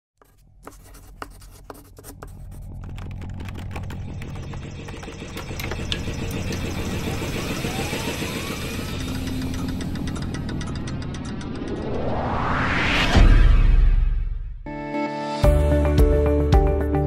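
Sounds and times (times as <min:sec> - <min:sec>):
gears clicking and ticking: 0:02.7 - 0:12.0
rising whine: 0:02.8 - 0:14.7.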